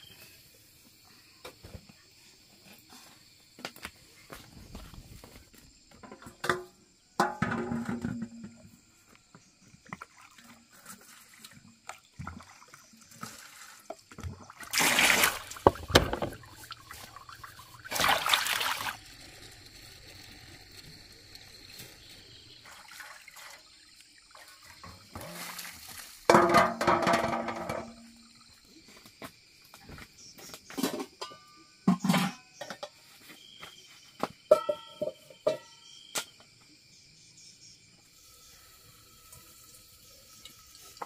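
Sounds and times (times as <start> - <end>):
water splashing and pouring: 9.7 - 28.2, 38.2 - 41.0.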